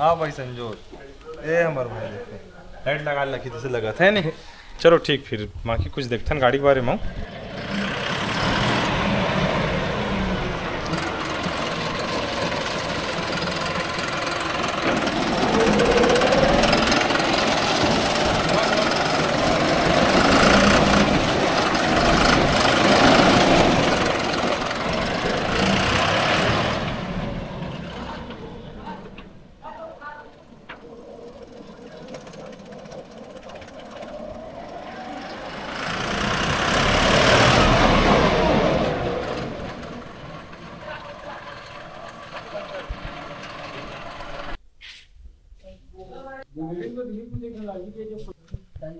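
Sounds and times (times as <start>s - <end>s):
tractor diesel engine revving: 6.4s - 44.6s.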